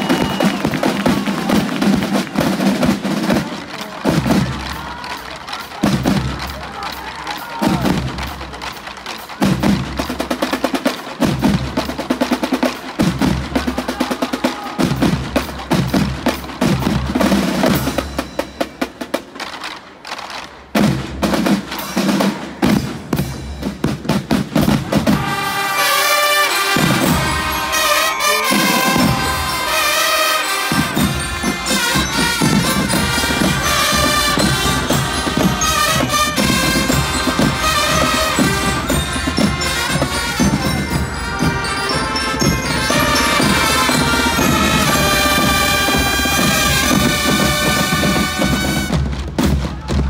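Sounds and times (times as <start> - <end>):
marching drum line: 0.0 - 50.0
trumpets playing held melody: 25.0 - 49.2.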